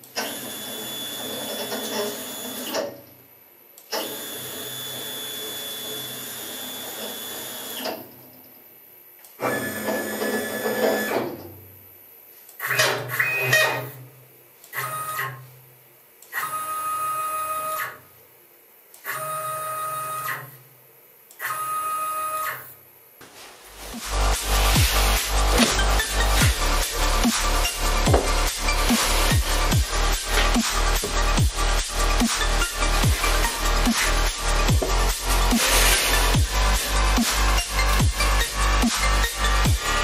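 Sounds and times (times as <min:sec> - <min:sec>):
stepper motors whining: 0:24.0 - 0:39.9.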